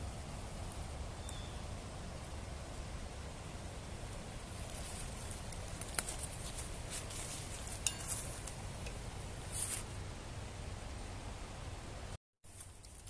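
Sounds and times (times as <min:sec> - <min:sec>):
low steady rumble: 0:00.0 - 0:12.8
brushing through bushes: 0:04.4 - 0:10.0
footsteps crunching on leaves: 0:04.5 - 0:08.6
twigs snapping: 0:04.6 - 0:08.6.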